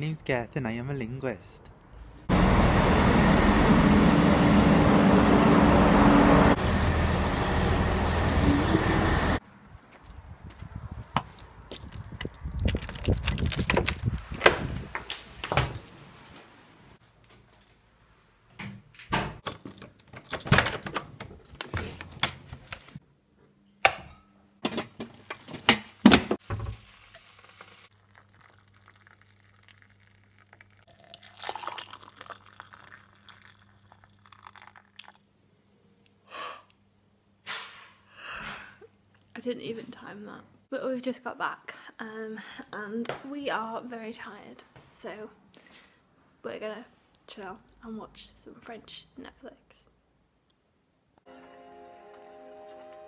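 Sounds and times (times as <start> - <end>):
keys jangling: 11.4 - 14.8, 15.4 - 18.4, 19.4 - 23.0
key turning in a door lock: 11.8 - 14.7, 19.4 - 23.0.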